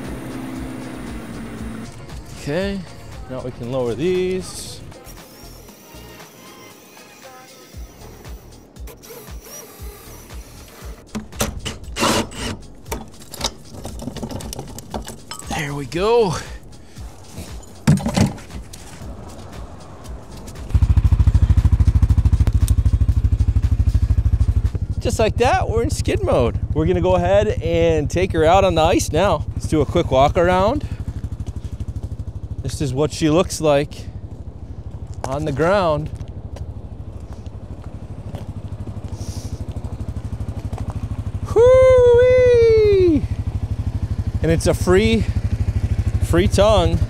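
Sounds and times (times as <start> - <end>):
atv engine starting and idling: 7.9 - 12.0, 20.2 - 47.0.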